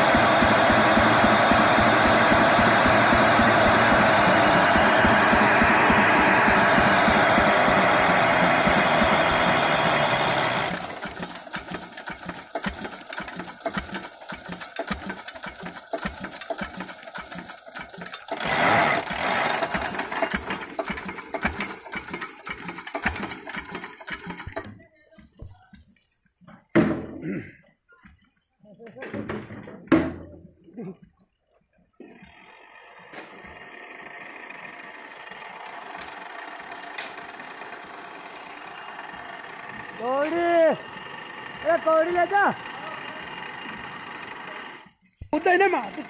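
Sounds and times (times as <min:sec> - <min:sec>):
diesel engine running: 0:00.0 - 0:24.7, 0:32.0 - 0:46.0
mechanical clatter: 0:10.4 - 0:24.7.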